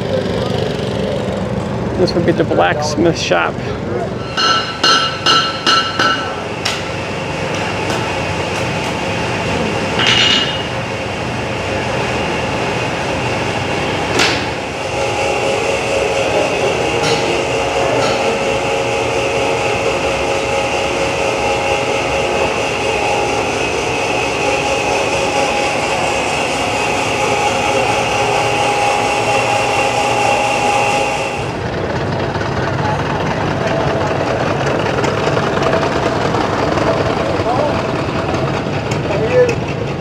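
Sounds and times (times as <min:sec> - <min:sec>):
metal lathe running: 0:00.0 - 0:40.0
hammer striking iron on anvil: 0:04.2 - 0:08.6, 0:10.0 - 0:10.7, 0:17.0 - 0:18.5.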